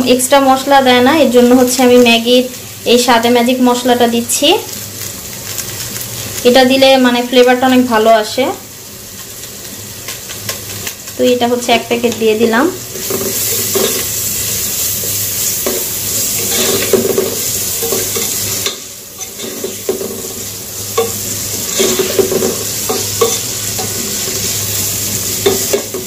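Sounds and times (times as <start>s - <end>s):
food sizzling in hot oil: 0.0s - 26.0s
spatula scraping pan: 12.9s - 26.0s.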